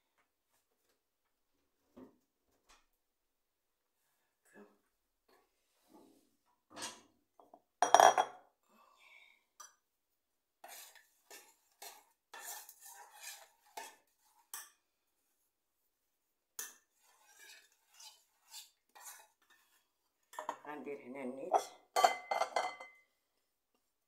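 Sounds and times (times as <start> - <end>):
dishes and utensils clinking: 7.8 - 8.4, 21.5 - 23.0.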